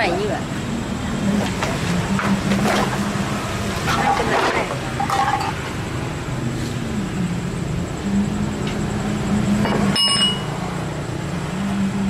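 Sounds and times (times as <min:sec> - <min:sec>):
low mechanical hum: 0:00.0 - 0:12.0.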